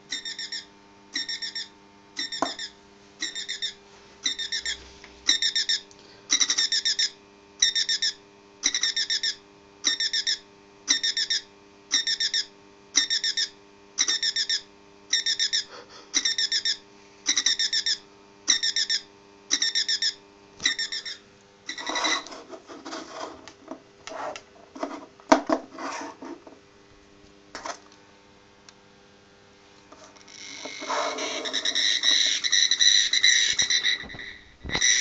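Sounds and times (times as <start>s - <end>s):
alarm clock beeping: 1.2s - 11.4s, 12.0s - 14.6s, 15.2s - 22.2s, 30.8s - 35.0s.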